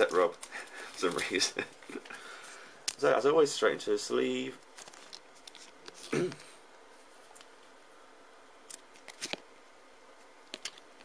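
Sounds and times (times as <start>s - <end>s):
card sliding into plastic sleeve: 9.0s - 9.4s.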